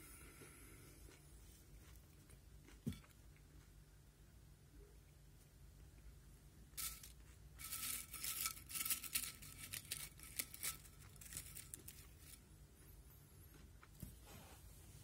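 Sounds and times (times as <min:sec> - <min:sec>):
crisp packet crinkling: 0:06.8 - 0:12.4.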